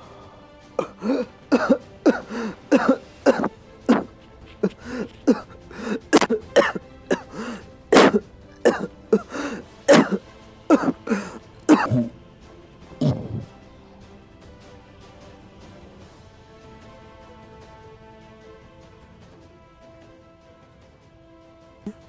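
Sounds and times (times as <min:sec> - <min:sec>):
faint music: 0:00.0 - 0:22.0
man coughing harshly: 0:00.8 - 0:12.1, 0:13.0 - 0:13.5.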